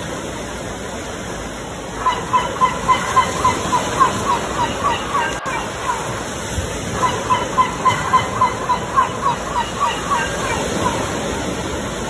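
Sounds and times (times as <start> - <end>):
ocean surf rushing: 0.0 - 12.0
sea bird calling: 1.8 - 12.0.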